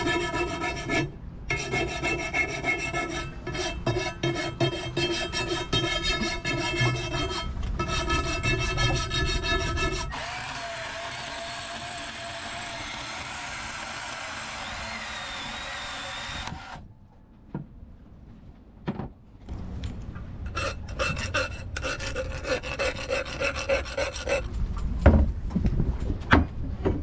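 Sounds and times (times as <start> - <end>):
file scraping steel pipe: 0.0 - 10.3, 20.5 - 24.5
power tool on steel pipe: 10.1 - 16.8.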